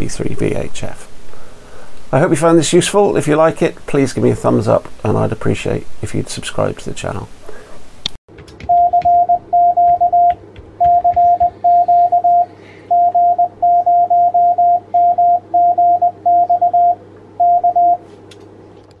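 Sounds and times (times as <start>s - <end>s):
low hum: 8.4s - 18.0s
morse code tone: 8.6s - 18.0s.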